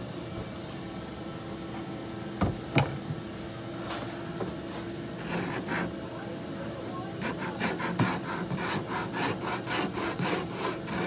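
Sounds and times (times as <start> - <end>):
steady low hum: 0.0 - 11.0
tools knocking on wooden bench: 2.4 - 3.0
file strokes on wood: 5.2 - 5.9, 7.2 - 11.0.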